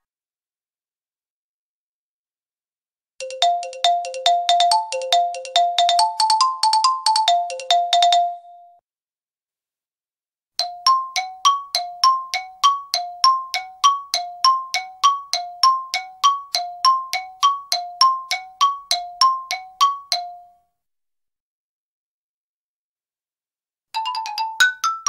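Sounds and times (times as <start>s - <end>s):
xylophone struck with mallets: 3.2s - 8.7s, 10.6s - 20.5s.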